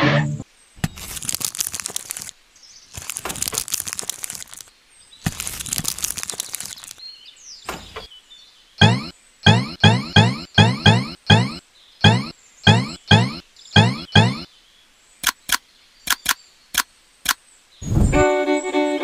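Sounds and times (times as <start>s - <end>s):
plastic wrappers crinkling: 0.8s - 7.0s
bouncy tune with boing notes: 8.8s - 14.5s.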